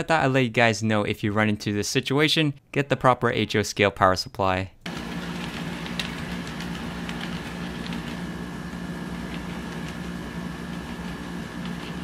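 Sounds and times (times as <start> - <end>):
model train motor hum: 4.9 - 12.0.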